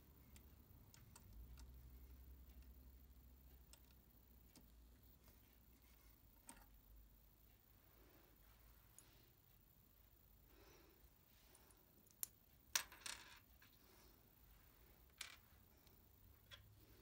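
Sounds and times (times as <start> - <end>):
faint clicks of metal parts: 0.0 - 7.0, 11.5 - 14.2.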